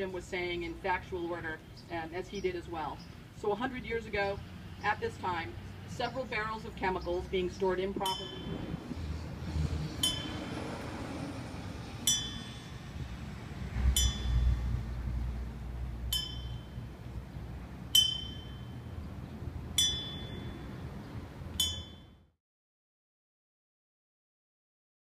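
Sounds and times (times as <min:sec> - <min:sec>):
small high-pitched bell ringing: 0:08.1 - 0:08.6, 0:10.0 - 0:10.4, 0:12.1 - 0:12.7, 0:14.0 - 0:14.5, 0:16.1 - 0:16.8, 0:18.0 - 0:18.8, 0:19.8 - 0:20.7, 0:21.6 - 0:22.1.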